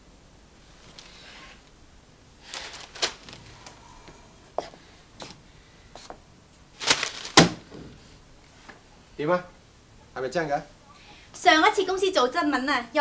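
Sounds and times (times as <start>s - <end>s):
newspaper pages rustling: 2.4s - 3.7s, 6.8s - 7.7s.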